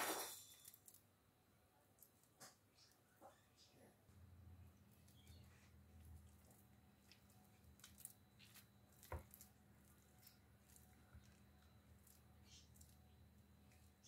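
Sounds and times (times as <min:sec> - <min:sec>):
low steady hum: 0:00.4 - 0:14.0
spatula squishing mashed potato: 0:04.4 - 0:14.0.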